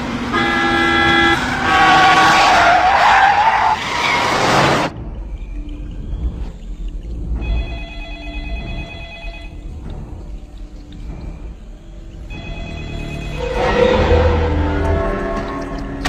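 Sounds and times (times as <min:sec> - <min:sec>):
low rumble: 0:04.9 - 0:16.0
telephone ringing: 0:07.5 - 0:09.6, 0:12.3 - 0:13.4.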